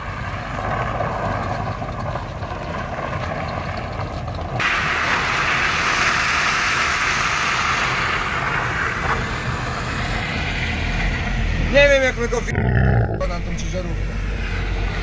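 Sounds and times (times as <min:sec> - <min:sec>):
vehicle engine rumble: 0:00.0 - 0:06.6.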